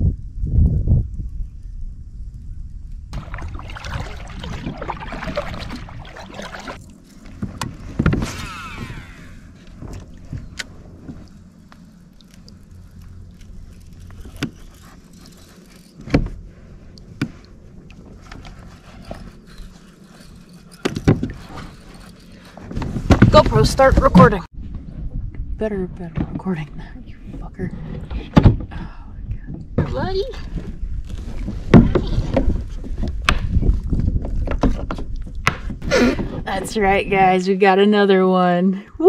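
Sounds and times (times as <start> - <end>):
rustling and scraping on kayak: 3.1 - 37.2.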